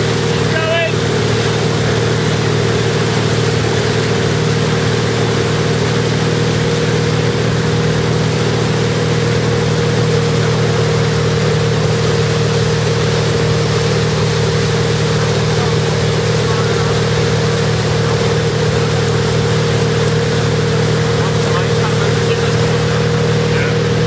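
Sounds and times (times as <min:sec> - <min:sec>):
boat engine droning: 0:00.0 - 0:24.0
rushing wake water: 0:00.0 - 0:24.0.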